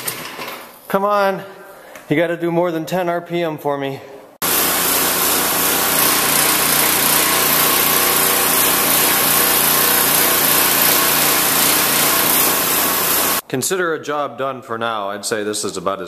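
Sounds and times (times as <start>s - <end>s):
small engine running: 4.4s - 13.4s
water jet spraying: 4.4s - 13.4s.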